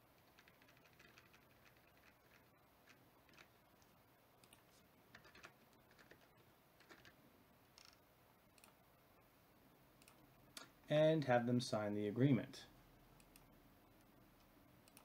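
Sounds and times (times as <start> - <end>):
computer keyboard typing: 0.2 - 3.6, 4.4 - 7.2
mouse clicks: 6.8 - 8.8, 10.0 - 10.7, 13.2 - 15.0.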